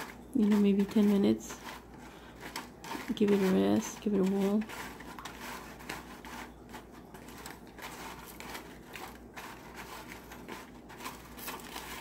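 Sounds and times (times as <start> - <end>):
foil scraping and crinkling: 0.0 - 12.0
spoon stirring in liquid: 0.0 - 12.0.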